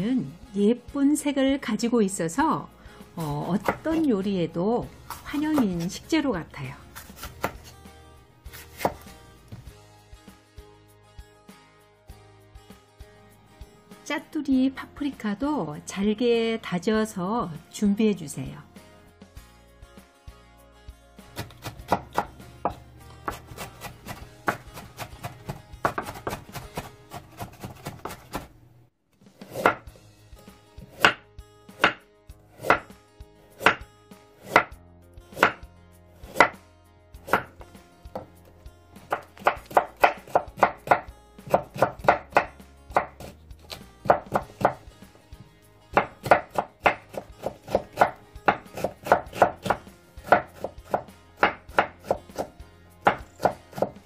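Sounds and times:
knife chopping on wooden board: 3.5 - 4.1, 5.0 - 5.9, 6.9 - 7.7, 8.5 - 9.7, 21.4 - 28.5, 29.4 - 29.9, 30.8 - 31.2, 31.8 - 32.0, 32.6 - 33.0, 33.6 - 33.8, 34.4 - 34.8, 35.4 - 35.6, 36.3 - 36.6, 37.2 - 38.3, 39.0 - 44.9, 45.9 - 54.0.

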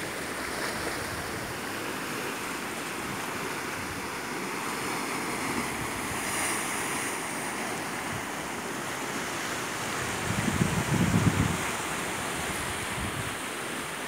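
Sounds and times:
sea surf washing around rocks: 0.0 - 14.0.

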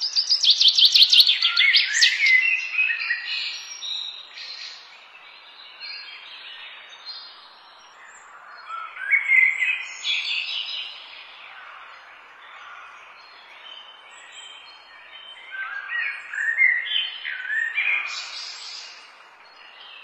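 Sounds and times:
birds chirping and calling: 0.0 - 4.9, 8.0 - 20.0.

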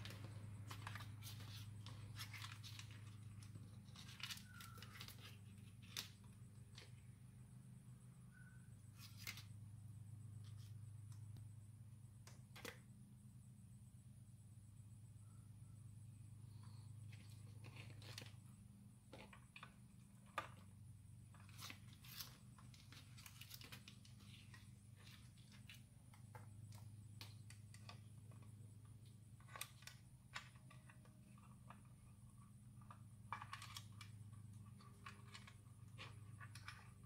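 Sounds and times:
rustling of wires: 0.0 - 7.1, 17.1 - 37.0.

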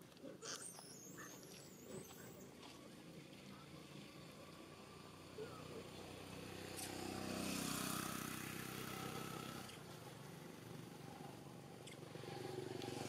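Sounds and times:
vehicle engine passing by: 3.1 - 13.0.

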